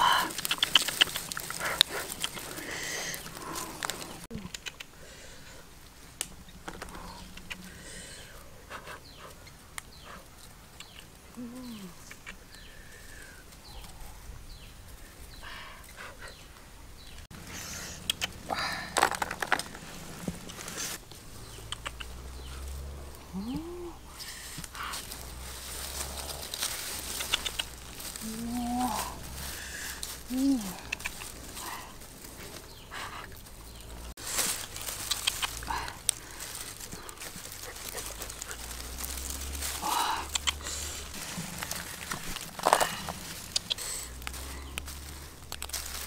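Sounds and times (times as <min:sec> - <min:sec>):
low arching animal calls: 0:00.0 - 0:16.7, 0:19.8 - 0:46.0
hands rustling dry grass: 0:00.0 - 0:46.0
eggs clicking together: 0:00.2 - 0:02.6.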